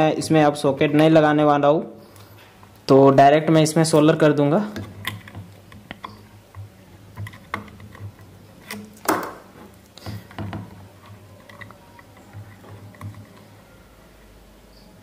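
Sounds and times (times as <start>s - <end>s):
soldering clicks and taps: 4.8s - 10.7s.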